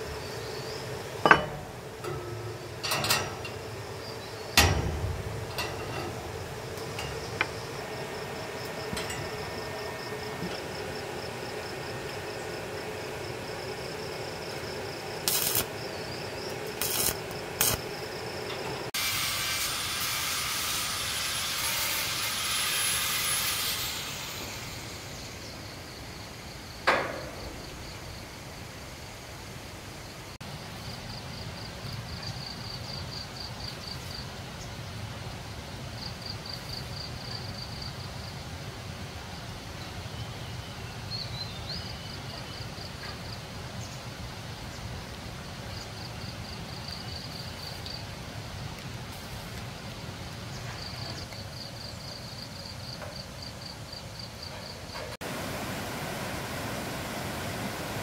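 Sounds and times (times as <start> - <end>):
steady low rumble: 0.0 - 18.9
sharp ringing knock: 1.3 - 1.7.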